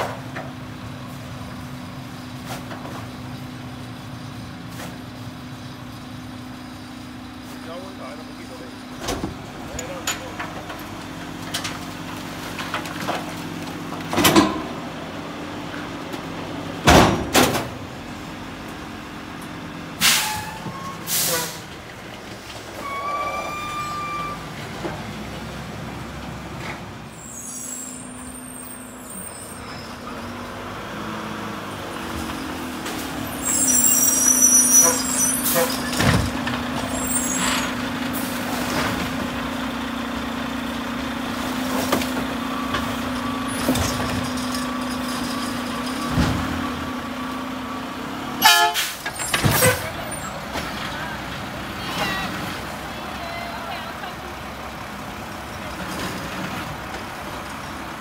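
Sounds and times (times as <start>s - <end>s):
truck engine humming: 0.0s - 58.0s
air brakes hissing: 20.0s - 21.7s, 48.5s - 49.9s.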